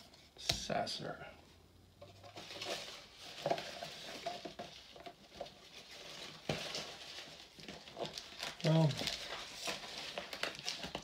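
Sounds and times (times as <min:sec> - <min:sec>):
cards and packaging rustling: 0:02.1 - 0:11.0.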